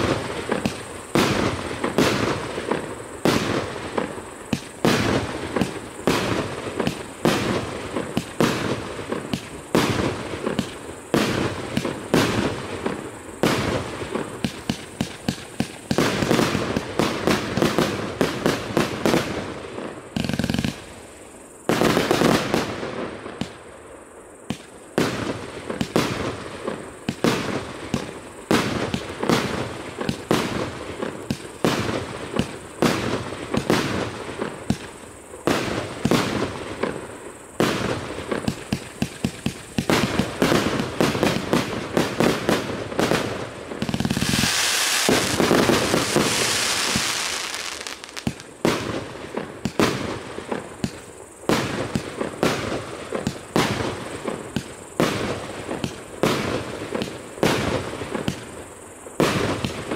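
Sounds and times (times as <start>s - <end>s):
firework launch thumps and bursts: 0.0s - 19.4s, 37.6s - 58.5s.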